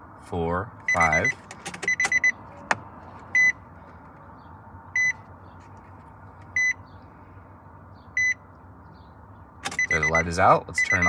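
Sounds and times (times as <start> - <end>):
warning chime beeps: 0.9 - 2.4, 5.0 - 5.2, 9.7 - 11.0
ignition key click: 1.3 - 2.3, 9.6 - 10.1.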